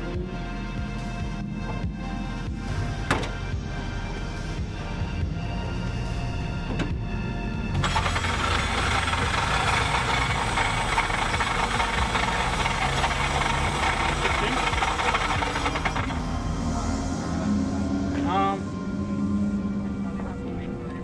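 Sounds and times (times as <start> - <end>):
starter motor whirring and rattling: 7.7 - 16.3.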